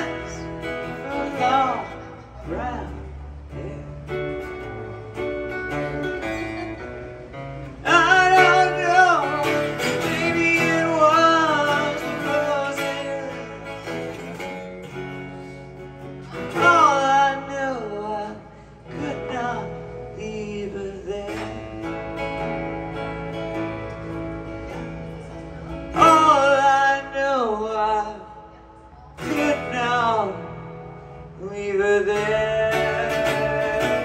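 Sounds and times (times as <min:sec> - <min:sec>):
person singing: 0:00.0 - 0:06.8, 0:07.8 - 0:14.4, 0:16.0 - 0:22.0, 0:25.9 - 0:30.6, 0:31.4 - 0:34.0
acoustic guitar strumming: 0:00.0 - 0:34.0.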